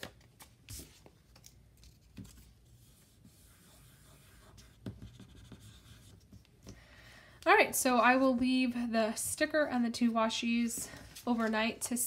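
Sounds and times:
paper rustling: 10.9s - 12.0s.

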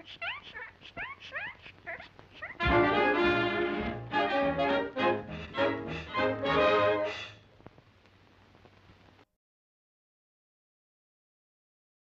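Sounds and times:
film soundtrack hiss: 0.0s - 9.3s
orchestral cartoon music: 2.6s - 7.4s.

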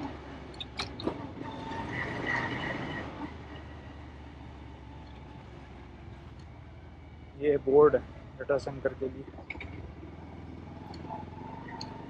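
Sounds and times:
motorcycle engine running: 4.4s - 12.0s.

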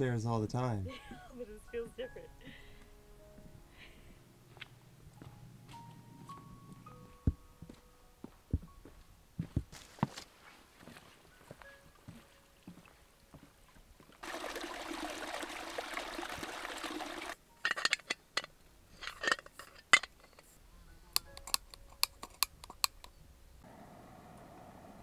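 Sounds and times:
rushing water: 14.2s - 17.4s.

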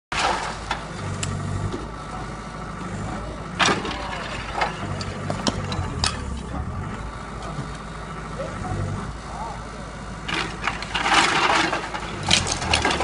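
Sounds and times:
diesel engine running: 0.1s - 13.0s
roof tiles cracking and clattering: 10.3s - 13.0s.

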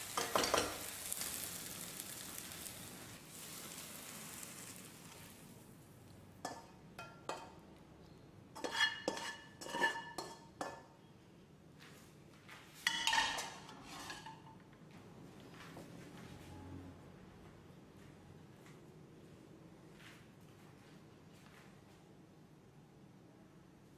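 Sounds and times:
spatula scraping and knocking pan: 0.0s - 1.4s, 8.6s - 10.8s, 12.8s - 14.5s
vegetables sizzling in frying pan: 0.0s - 7.4s.

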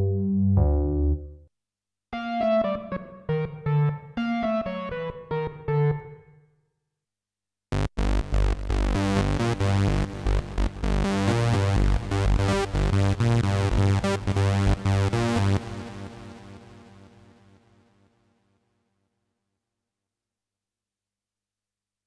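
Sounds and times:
synthesizer chords over bass: 0.0s - 1.4s, 2.2s - 6.2s, 7.8s - 16.3s
organ notes: 2.2s - 6.2s.

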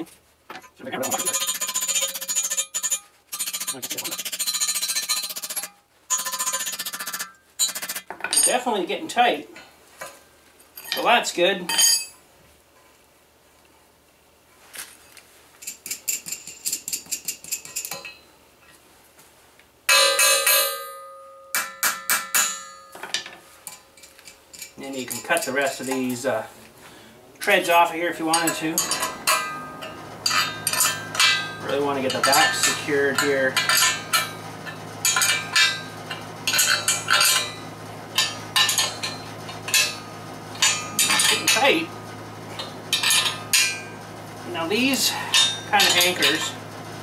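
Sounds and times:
steel post ringing: 1.0s - 8.6s, 19.9s - 26.0s, 28.3s - 41.9s, 42.5s - 44.1s, 45.3s - 46.6s
wrench clinking on metal: 1.0s - 8.6s, 10.7s - 11.1s, 11.7s - 12.2s, 15.6s - 18.3s, 19.9s - 26.2s, 27.8s - 41.9s, 42.6s - 43.9s, 45.0s - 46.6s
steady low hum: 22.4s - 47.0s.

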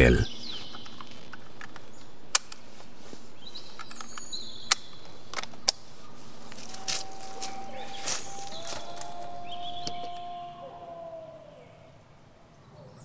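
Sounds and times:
birds chirping: 0.0s - 11.9s
magazine snapping into place: 0.8s - 2.6s, 3.8s - 5.8s.

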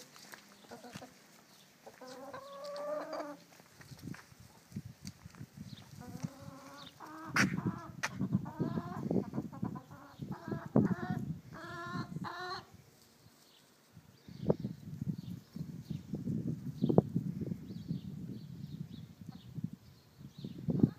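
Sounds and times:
hens clucking: 0.5s - 3.6s, 5.8s - 12.8s.

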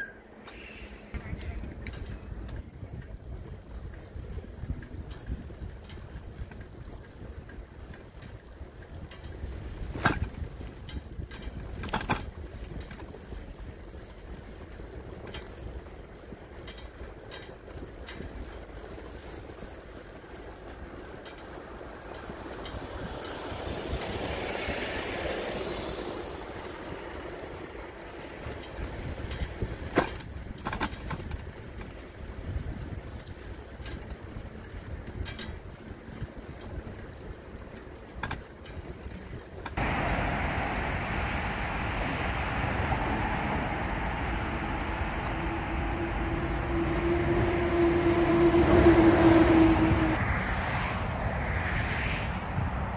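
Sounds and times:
wind and tyres rumbling: 0.0s - 52.9s
broad rush of noise: 39.8s - 52.9s.

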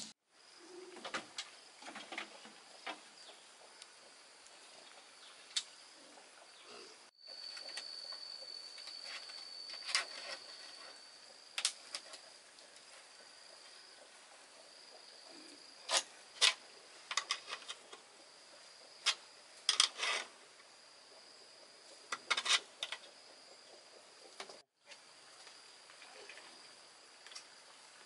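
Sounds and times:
high-pitched insect drone: 7.1s - 11.5s.

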